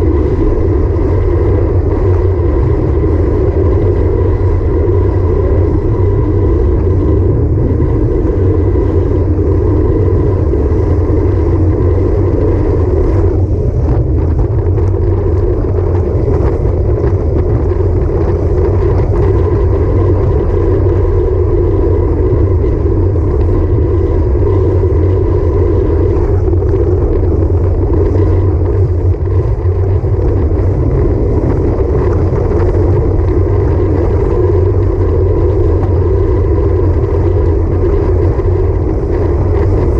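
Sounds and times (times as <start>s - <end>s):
faint steady whine: 0.0s - 39.9s
tyre noise on road: 0.0s - 39.9s
wind rushing over microphone: 0.0s - 39.9s.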